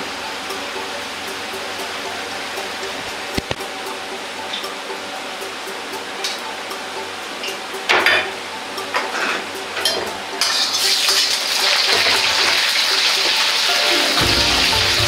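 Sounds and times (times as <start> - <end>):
metal clinks of ladle and plate: 7.9 - 12.3
vegetables sizzling in hot oil: 10.4 - 15.0.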